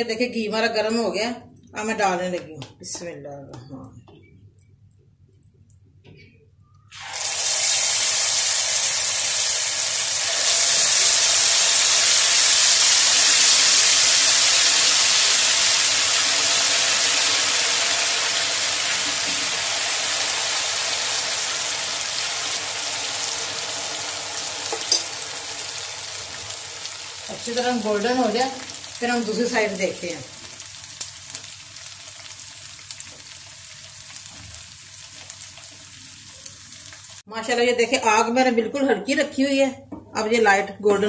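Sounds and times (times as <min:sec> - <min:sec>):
batter sizzling in hot oil: 0:06.9 - 0:37.3.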